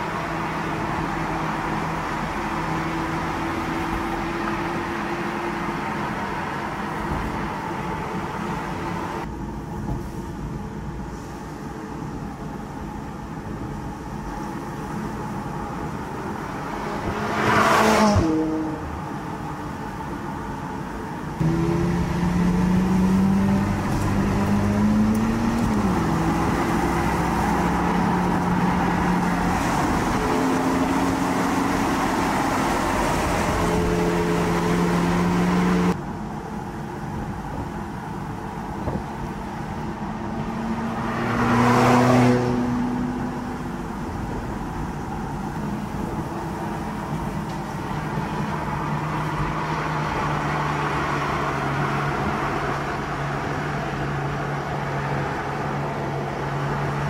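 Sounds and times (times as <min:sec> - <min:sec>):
sports car passing by: 0:16.5 - 0:19.0, 0:21.4 - 0:36.0, 0:40.0 - 0:44.0.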